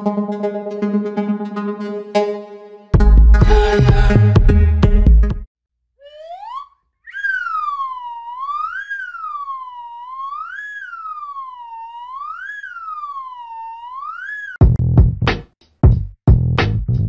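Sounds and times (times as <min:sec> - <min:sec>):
siren-like wailing tone: 0:06.0 - 0:14.6.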